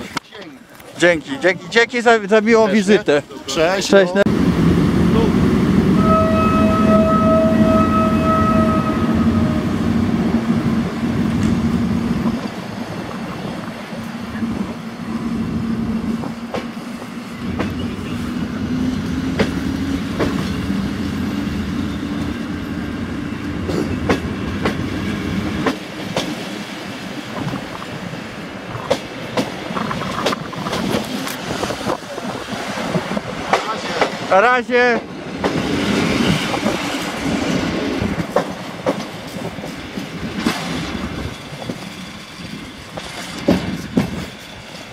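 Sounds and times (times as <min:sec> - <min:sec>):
locomotive hum and rumble: 0:04.3 - 0:34.3
wheels clicking over rail joints: 0:28.7 - 0:37.4, 0:38.0 - 0:44.9.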